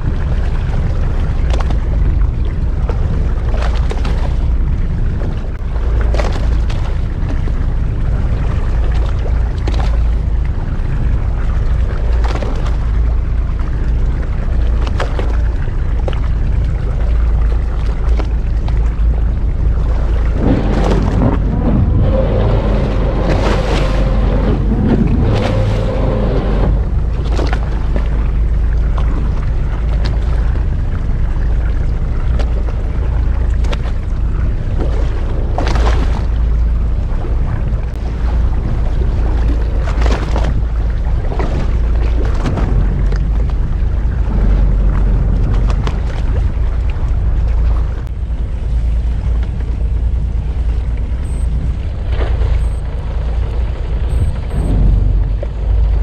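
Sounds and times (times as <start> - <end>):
water slapping against hull: 0.0 - 56.0
wind buffeting microphone: 0.0 - 56.0.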